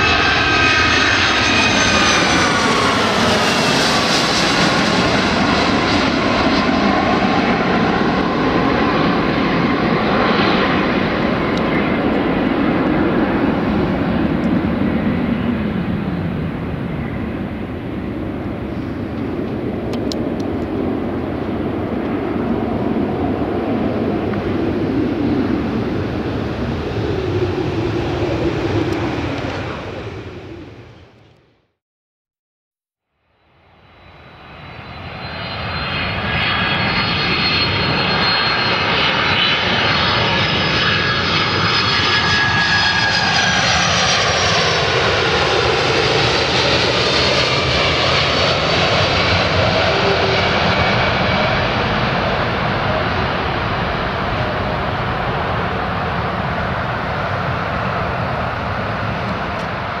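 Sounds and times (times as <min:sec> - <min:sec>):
jet airliner passing overhead: 0:00.0 - 0:31.6, 0:33.5 - 1:00.0.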